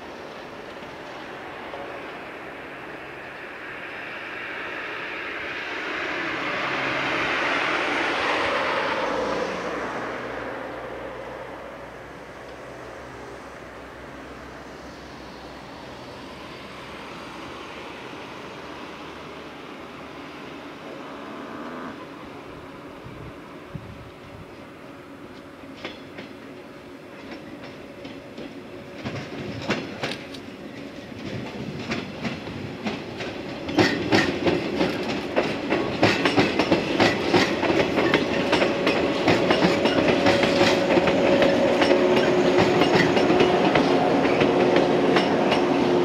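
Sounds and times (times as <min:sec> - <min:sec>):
steady train hum: 0:00.0 - 0:46.0
train wheels clicking over rail joints: 0:25.2 - 0:46.0.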